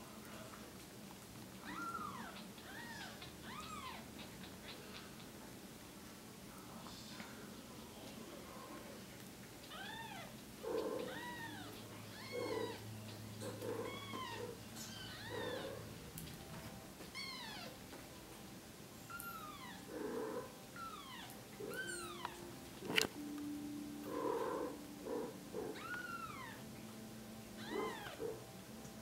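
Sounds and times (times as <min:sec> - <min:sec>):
kitten mewing: 0:24.1 - 0:26.6, 0:27.6 - 0:28.4.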